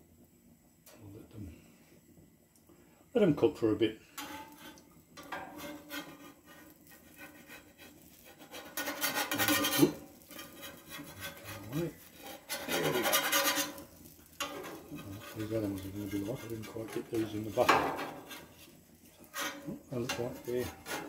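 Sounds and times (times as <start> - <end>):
metal spatula scraping griddle: 4.1 - 21.0.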